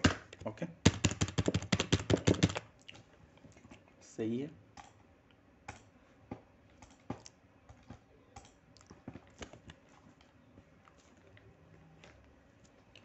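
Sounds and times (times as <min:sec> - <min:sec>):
keyboard key presses: 0:00.9 - 0:02.6
computer mouse clicks: 0:06.8 - 0:07.3, 0:08.4 - 0:08.6.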